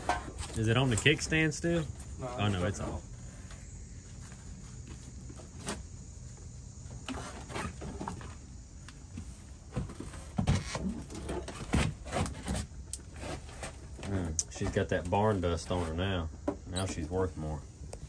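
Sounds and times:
knocks clunks and scrapes: 0.0s - 6.0s, 6.8s - 8.5s, 9.1s - 17.5s.

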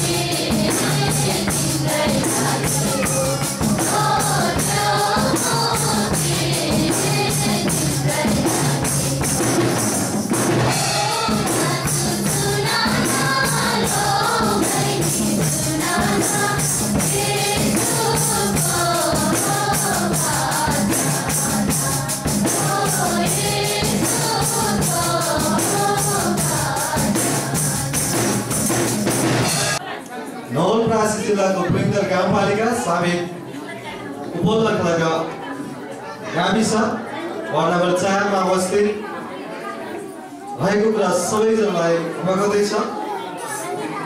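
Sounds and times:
women singing a hymn: 0.0s - 9.9s, 10.7s - 28.7s
tambourine beat: 0.0s - 29.8s.

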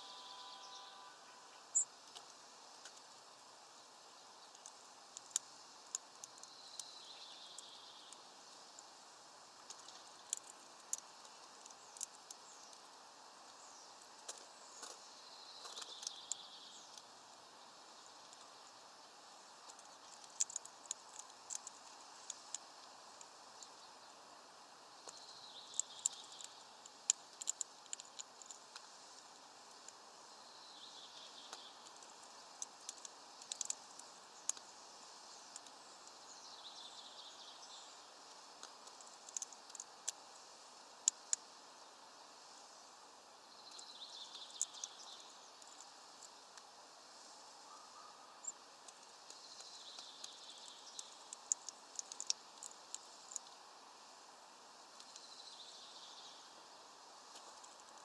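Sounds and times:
distant songbird singing: 0.0s - 2.0s, 6.2s - 8.7s, 14.6s - 22.5s, 25.0s - 28.2s, 43.4s - 46.0s, 47.6s - 53.4s
outdoor hiss: 0.0s - 58.0s
sharp ticks: 19.6s - 24.2s, 25.0s - 30.0s, 31.5s - 34.7s, 38.6s - 40.2s, 48.4s - 53.6s.

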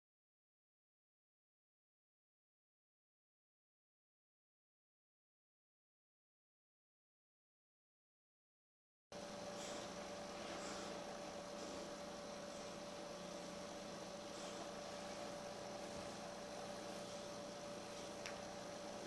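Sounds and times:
faint electrical hum: 9.1s - 19.0s
low hiss: 9.2s - 19.0s.

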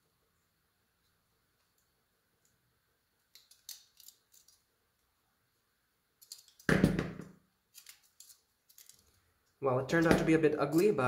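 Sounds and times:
pliers clicking on metal wire: 3.2s - 4.7s, 6.2s - 6.7s, 7.7s - 9.1s.

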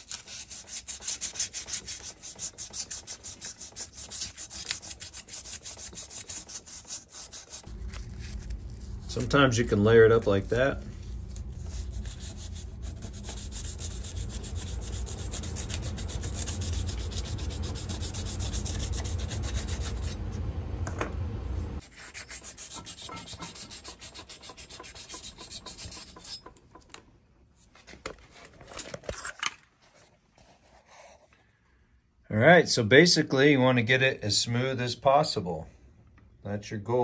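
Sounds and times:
sandpaper rubbing inside metal port: 0.0s - 9.4s, 11.0s - 20.4s, 21.8s - 26.6s.

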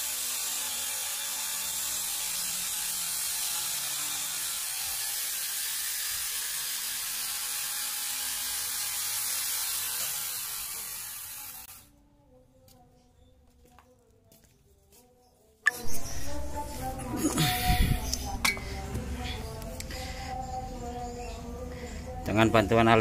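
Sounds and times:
angle grinder chainsaw whirring: 0.0s - 11.8s.

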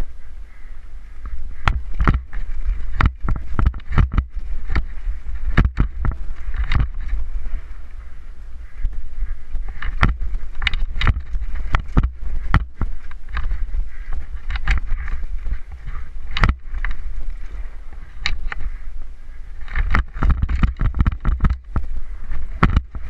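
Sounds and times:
wind rumble on microphone: 0.0s - 23.0s
bike rattling over rocks: 1.6s - 7.8s, 9.5s - 18.7s, 19.6s - 23.0s.

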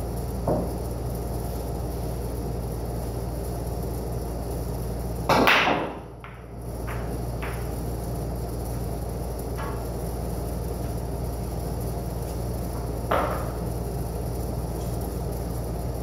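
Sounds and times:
steady background hum: 0.0s - 16.0s
pool balls clicking: 5.3s - 7.8s
pool balls cracking and clattering: 5.3s - 7.8s, 12.8s - 13.7s.

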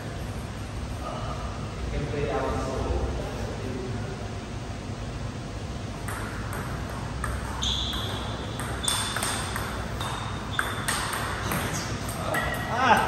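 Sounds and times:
table tennis ball clicking: 6.1s - 13.0s.

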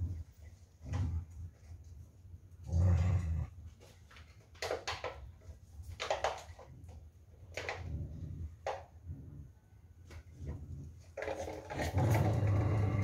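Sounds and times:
dog growling: 2.6s - 3.6s, 10.6s - 13.0s.

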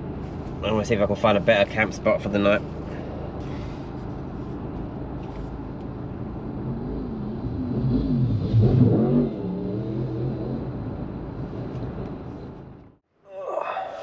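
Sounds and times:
low engine rumble: 0.0s - 13.1s
engine revving: 6.1s - 12.9s.

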